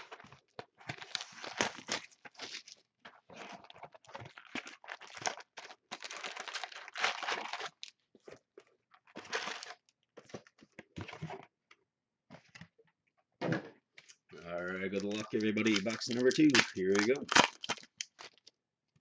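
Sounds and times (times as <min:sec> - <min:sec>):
plastic shrink wrap crinkling: 0:00.0 - 0:11.4, 0:14.0 - 0:19.0.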